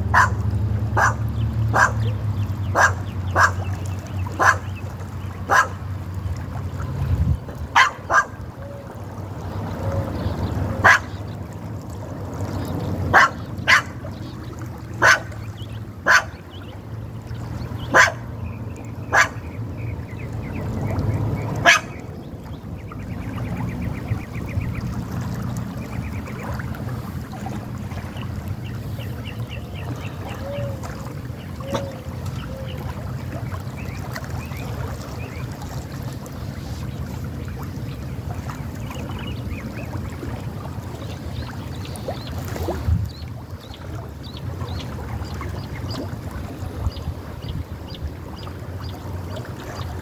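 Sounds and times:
creek water flowing: 0.0 - 50.0
dog barking: 0.1 - 0.4, 1.0 - 3.6, 4.4 - 4.7, 5.5 - 5.8, 7.8 - 8.4, 10.8 - 11.1, 13.1 - 14.0, 15.0 - 15.3, 16.0 - 16.4, 17.9 - 18.3, 19.1 - 19.4, 21.6 - 22.0.

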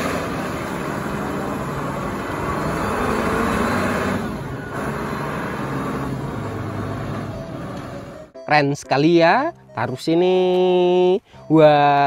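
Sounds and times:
forklift engine running: 0.0 - 8.4.

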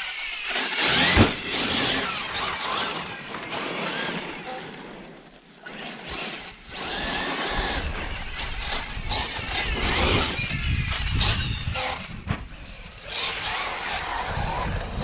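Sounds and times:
electric motor whining: 0.0 - 15.0.

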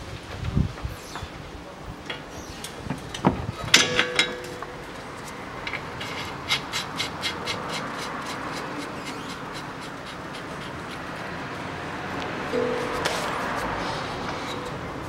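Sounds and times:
ringing metal clank: 3.7 - 5.0, 12.6 - 13.5, 14.2 - 15.0.

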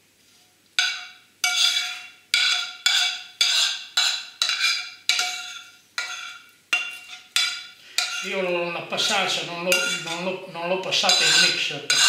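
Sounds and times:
utensil knocking ceramic dish: 11.0 - 12.0.

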